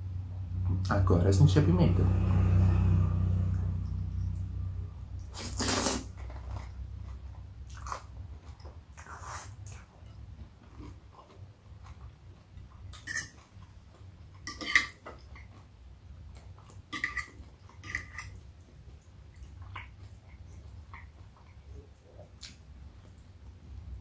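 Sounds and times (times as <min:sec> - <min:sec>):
low steady hum: 0:00.0 - 0:24.0
quiet chewing: 0:04.2 - 0:24.0
fork clinking against plate: 0:13.0 - 0:13.4, 0:14.5 - 0:15.0, 0:17.0 - 0:18.4.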